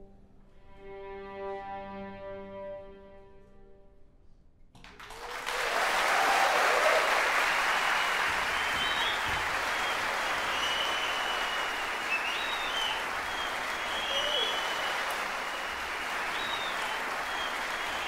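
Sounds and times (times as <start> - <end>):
audience applause: 4.9 - 18.0.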